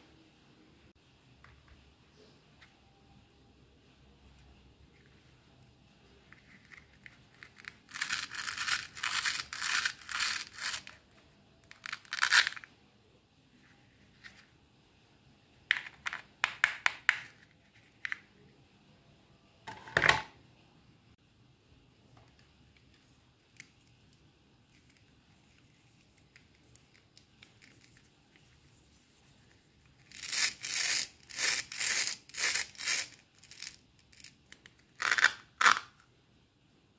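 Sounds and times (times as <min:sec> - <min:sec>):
plastic toy pieces rubbing: 0:06.3 - 0:12.7, 0:24.7 - 0:35.9.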